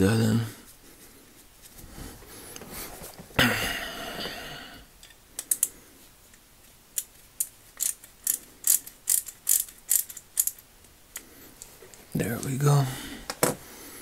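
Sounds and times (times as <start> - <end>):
ratchet screwdriver clicks: 7.0 - 10.6.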